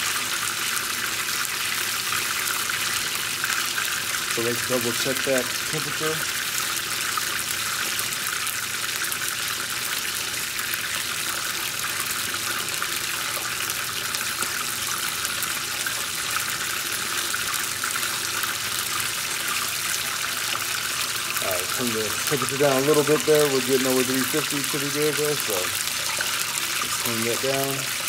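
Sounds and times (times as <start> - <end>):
chicken deep-frying in oil: 0.0 - 28.0.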